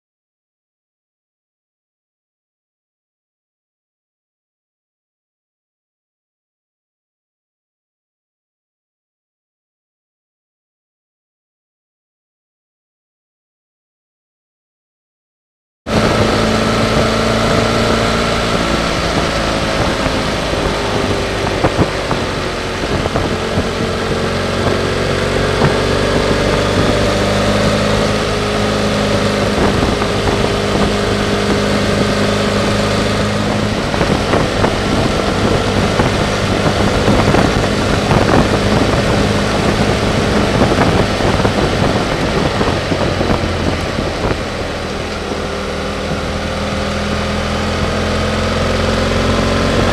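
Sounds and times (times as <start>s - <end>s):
motorcycle engine revving: 15.9s - 49.9s
wind noise: 15.9s - 49.9s.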